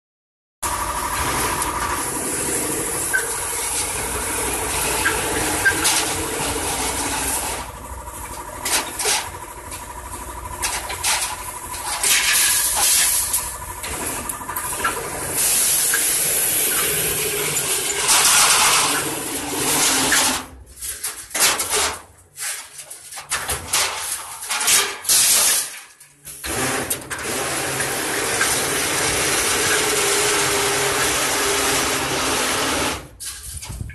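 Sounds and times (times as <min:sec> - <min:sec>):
faint machine whine: 0:00.7 - 0:19.0
bending machine hissing: 0:00.7 - 0:21.0, 0:26.3 - 0:33.2.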